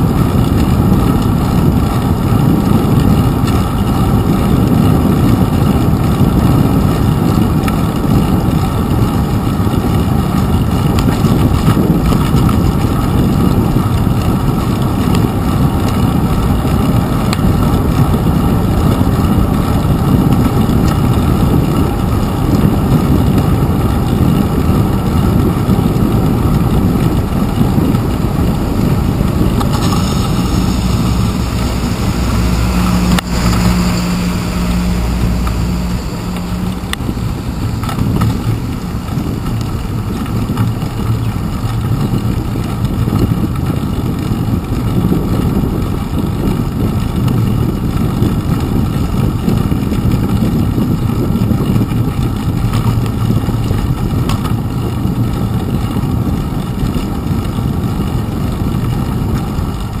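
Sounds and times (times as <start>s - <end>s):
low hum: 0.0s - 60.0s
road vibration: 0.0s - 60.0s
wind rumble: 0.0s - 60.0s.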